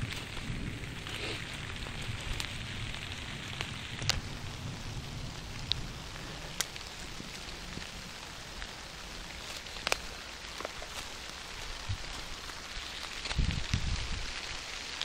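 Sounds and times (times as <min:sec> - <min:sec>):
rain falling with sharp ticks: 0:00.0 - 0:15.0.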